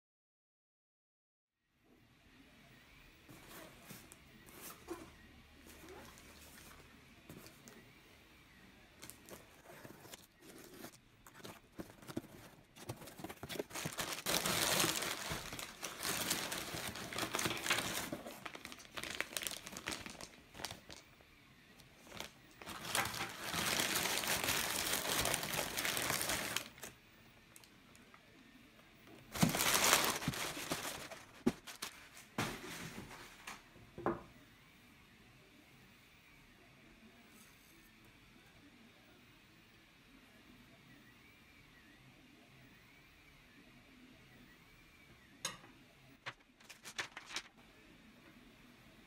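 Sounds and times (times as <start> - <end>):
paper and plastic bags crinkling: 9.0 - 21.0, 21.9 - 27.0, 29.2 - 33.3, 46.2 - 47.5.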